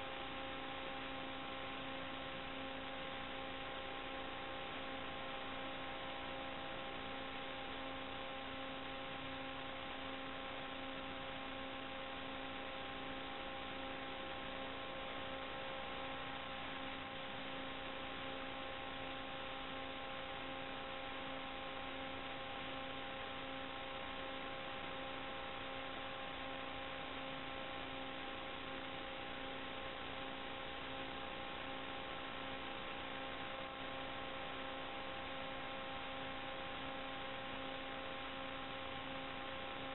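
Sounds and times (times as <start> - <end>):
electrical hum: 0.0 - 39.9.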